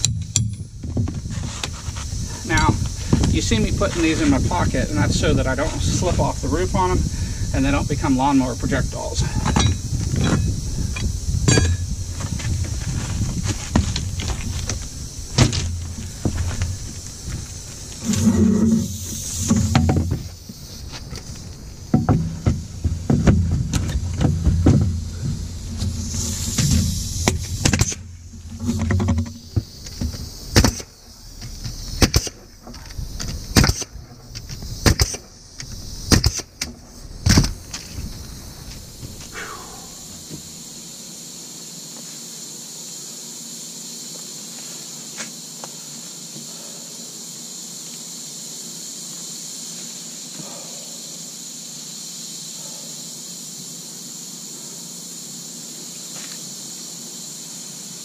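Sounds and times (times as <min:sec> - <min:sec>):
compressed air hissing: 0:01.2 - 0:41.1
nail gun firing: 0:30.5 - 0:30.9, 0:32.0 - 0:32.4, 0:33.5 - 0:34.0, 0:34.8 - 0:35.2, 0:36.1 - 0:36.6.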